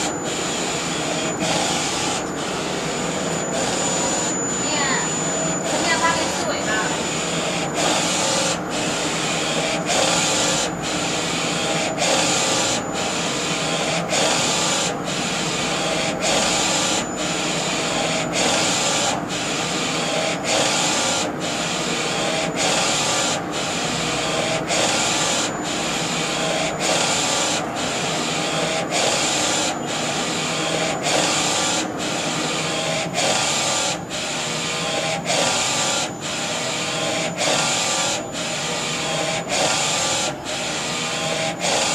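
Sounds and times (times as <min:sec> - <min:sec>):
thin high whine: 0:00.0 - 0:08.3.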